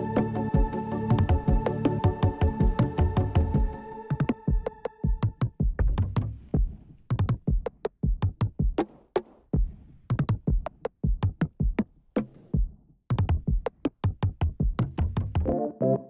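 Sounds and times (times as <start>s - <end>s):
electronic music with drum machine: 0.0s - 8.6s, 15.2s - 16.0s.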